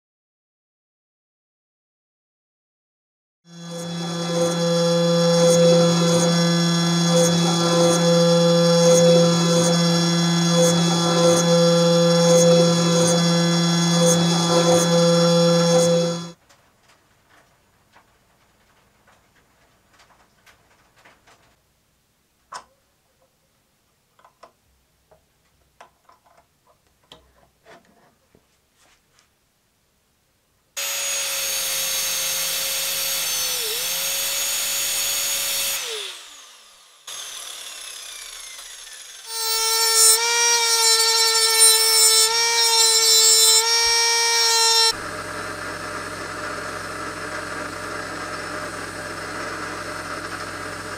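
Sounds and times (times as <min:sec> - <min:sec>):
angle grinder cutting steel rod: 0:03.5 - 0:16.4, 0:30.8 - 0:50.9
lathe drilling: 0:03.5 - 0:16.4, 0:30.8 - 0:50.9
loud machine whine: 0:03.5 - 0:16.4, 0:30.8 - 0:40.2, 0:42.7 - 0:50.9.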